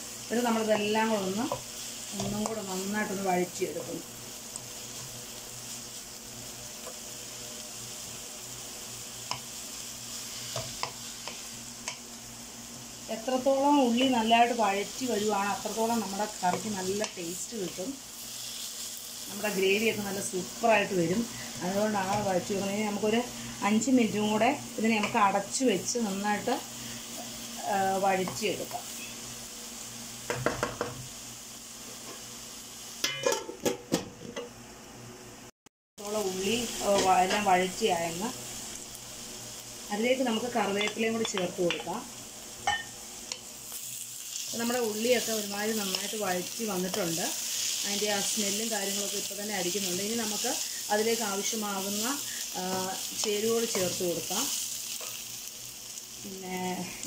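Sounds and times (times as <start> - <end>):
vegetables sizzling in oil: 0.0 - 57.0
spatula tapping pan: 9.2 - 9.5, 10.5 - 12.1, 40.6 - 41.9.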